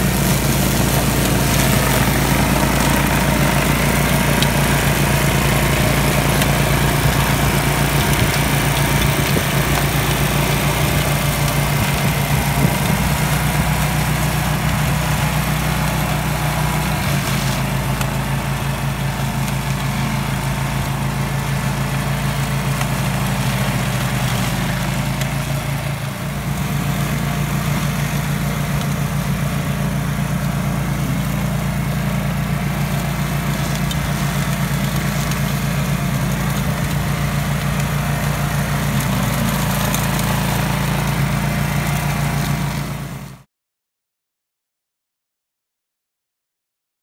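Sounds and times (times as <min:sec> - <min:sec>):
cutting dry grass and brush: 0:00.0 - 0:43.4
mulcher engine running: 0:00.0 - 0:43.4.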